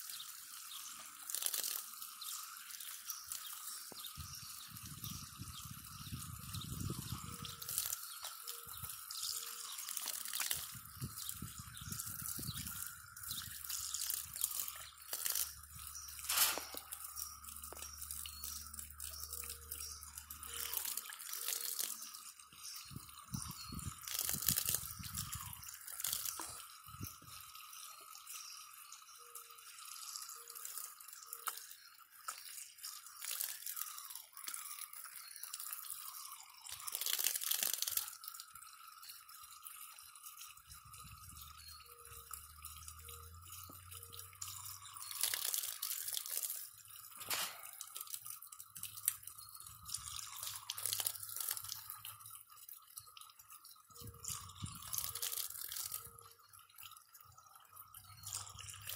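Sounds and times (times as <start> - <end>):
water hissing from hose nozzle: 0.0 - 27.4, 30.0 - 38.4, 42.8 - 52.2, 54.2 - 56.2
water splashing and dripping: 0.0 - 58.9.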